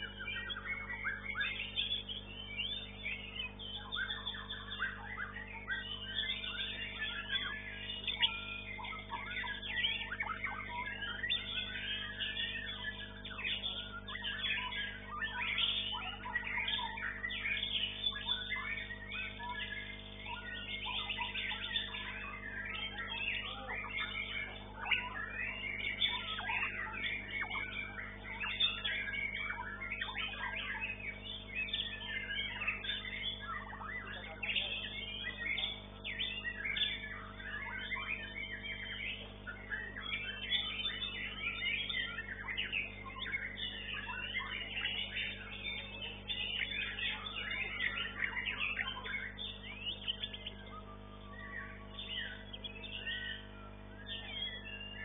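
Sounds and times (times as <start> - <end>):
bird song with chirps and whistles: 0.0 - 55.0.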